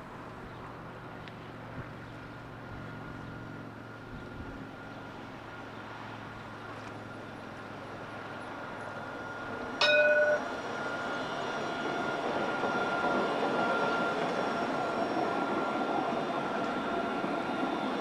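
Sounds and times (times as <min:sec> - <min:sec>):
tram running noise with whine: 0:00.0 - 0:18.0
tram warning horn blast: 0:09.8 - 0:11.8.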